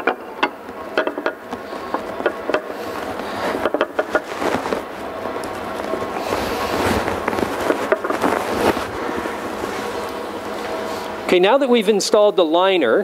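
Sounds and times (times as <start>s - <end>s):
metal liner clicking and knocking: 0.0s - 2.8s
faint shop hum: 0.0s - 13.0s.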